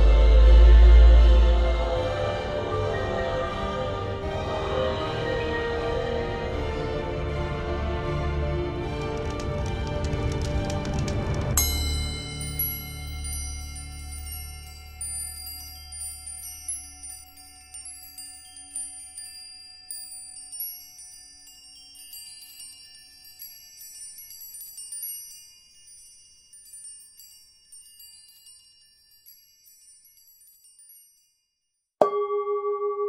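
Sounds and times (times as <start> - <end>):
low drone: 0.0 - 9.9
small high-pitched chimes tinkling: 11.6 - 33.0.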